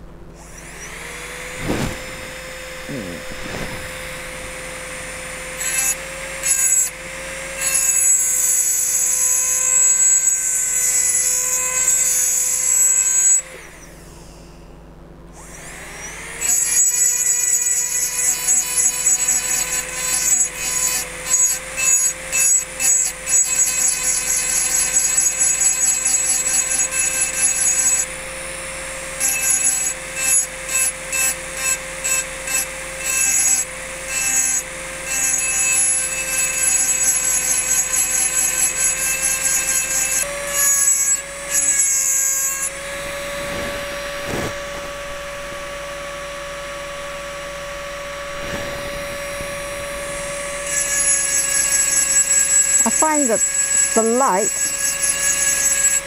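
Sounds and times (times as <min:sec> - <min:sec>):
engraving drill motor whine: 0:00.0 - 0:56.0
burr grinding glass: 0:00.5 - 0:07.0, 0:48.2 - 0:56.0.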